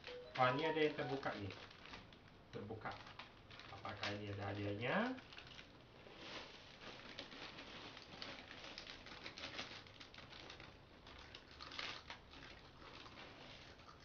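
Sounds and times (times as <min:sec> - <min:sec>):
plastic wrappers crinkling: 0:00.0 - 0:14.0.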